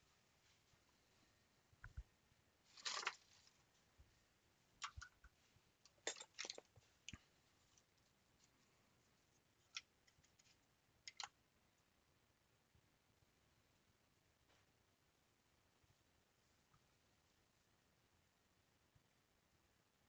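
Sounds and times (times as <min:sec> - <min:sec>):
faint small clicks: 0:09.6 - 0:11.4.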